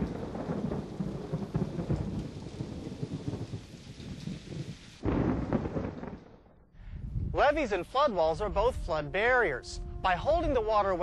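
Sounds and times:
rain: 0:00.0 - 0:06.7
thunder rumbling: 0:00.0 - 0:11.0.

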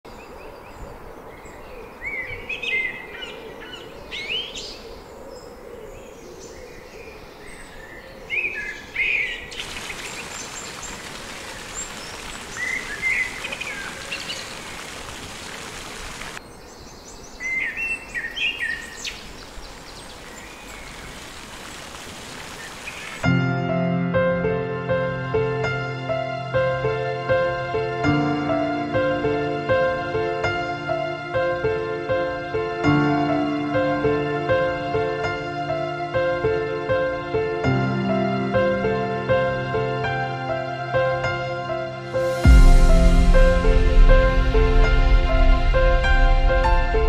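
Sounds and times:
small birds chirping: 0:00.1 - 0:23.2
fountain water splashing: 0:09.5 - 0:16.4, 0:19.1 - 0:23.2.

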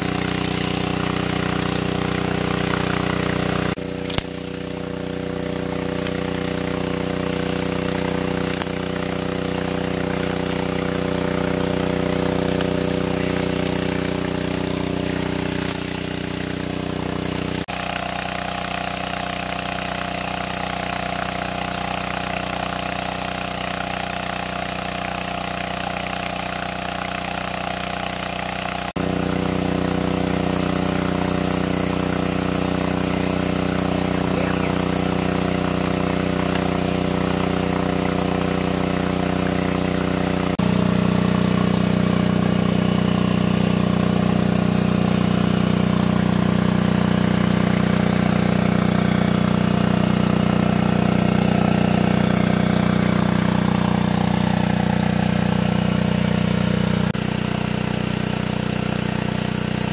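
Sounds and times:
water spraying hiss: 0:00.0 - 0:18.2
water pump engine running: 0:00.0 - 0:59.9.

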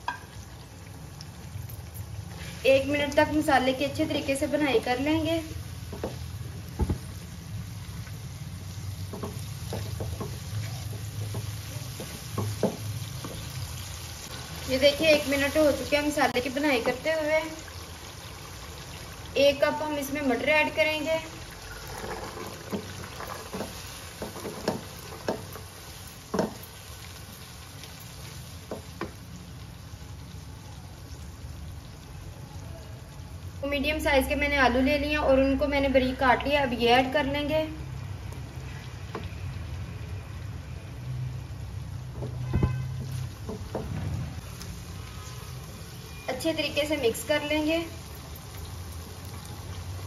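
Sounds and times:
food frying in oil: 0:00.0 - 0:50.0
steady sizzle: 0:00.0 - 0:50.0
spatula knocking and scraping pan: 0:05.9 - 0:07.0, 0:09.0 - 0:13.6, 0:22.0 - 0:25.7, 0:26.3 - 0:26.6
spatula scraping a wok: 0:21.7 - 0:26.5.

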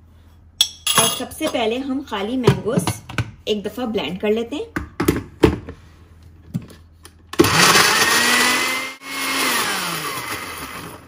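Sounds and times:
blender motor running: 0:07.4 - 0:11.0.

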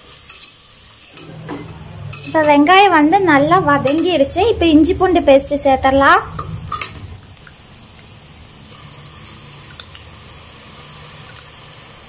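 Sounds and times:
onions sizzling in oil: 0:00.0 - 0:01.2, 0:07.5 - 0:12.0.

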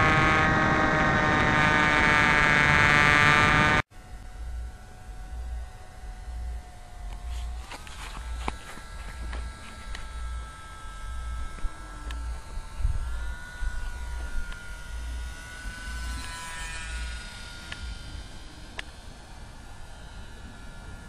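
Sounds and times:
model airplane motor whining: 0:00.0 - 0:21.0
wind rumble on microphone: 0:00.0 - 0:21.0.

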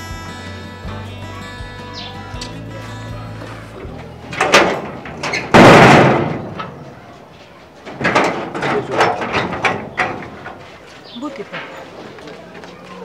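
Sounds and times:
banging on sheet-metal gate: 0:04.3 - 0:07.1, 0:07.8 - 0:10.6.

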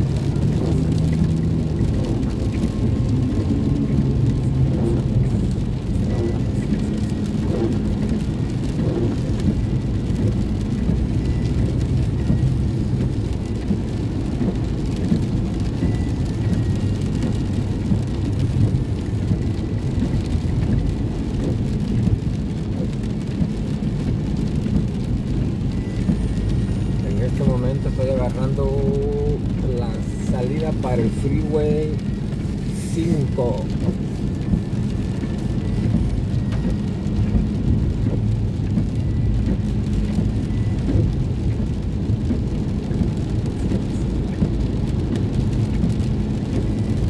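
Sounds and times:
rain on car: 0:00.0 - 0:47.0
tyre and engine noise: 0:00.0 - 0:47.0.

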